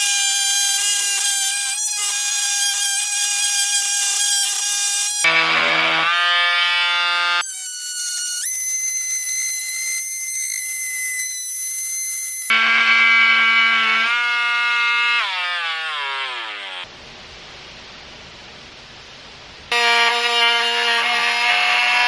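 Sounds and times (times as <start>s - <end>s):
oscillating multi-tool buzzing whine: 0.0s - 16.9s, 19.7s - 22.0s
faint hiss: 16.9s - 19.7s.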